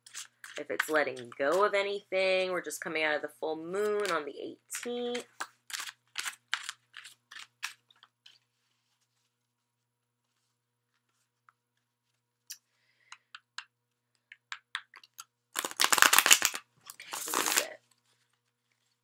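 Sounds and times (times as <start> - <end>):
cards being shuffled: 4.8 - 9.3, 15.6 - 19.0.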